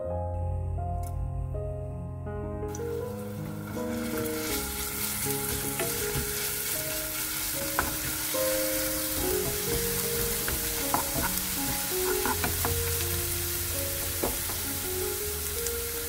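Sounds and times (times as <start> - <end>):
garlic sizzling in oil: 2.7 - 16.0
wooden spatula tapping pan: 5.4 - 6.5, 7.2 - 14.9.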